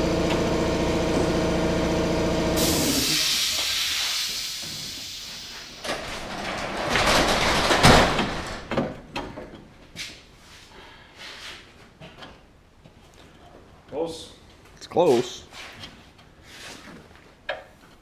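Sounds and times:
motor running: 0.0s - 3.2s
hiss: 2.6s - 5.8s
sheet metal clanking and rattling: 5.8s - 9.4s.

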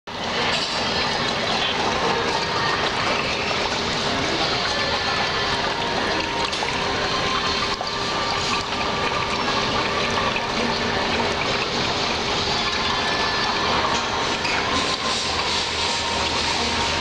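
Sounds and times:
fountain water trickling: 0.1s - 17.0s.

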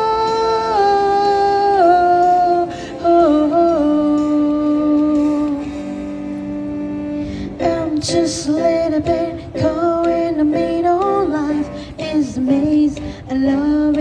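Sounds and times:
woman humming a slow melody: 0.0s - 5.7s.

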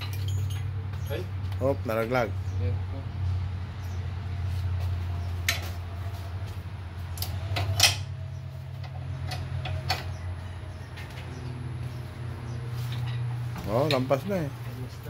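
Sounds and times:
sharp metallic clicks and knocks: 5.4s - 5.8s, 7.1s - 8.2s, 8.8s - 10.3s.

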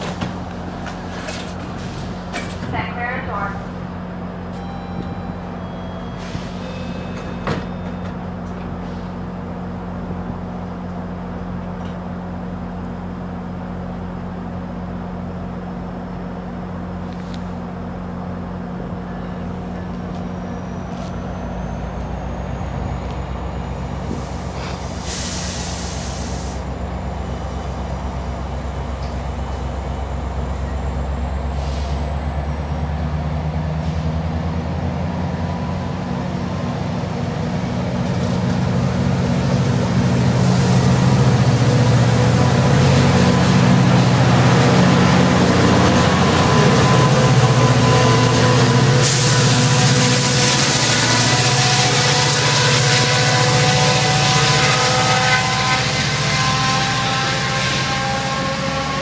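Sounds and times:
diesel train engine humming: 0.0s - 59.0s
train whine rising: 0.0s - 59.0s
air brakes hissing: 6.0s - 8.0s, 8.7s - 9.2s, 24.0s - 26.8s, 31.5s - 32.2s, 48.9s - 50.7s.

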